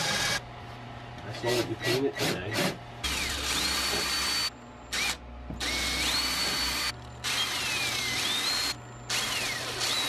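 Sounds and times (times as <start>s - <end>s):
cordless drill motor whine: 0.0s - 0.4s, 3.0s - 10.0s.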